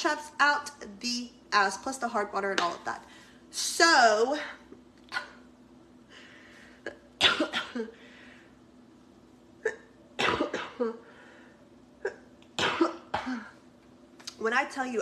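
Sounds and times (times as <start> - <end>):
woman coughing hard: 6.9 - 8.0, 9.6 - 11.0, 12.0 - 13.6.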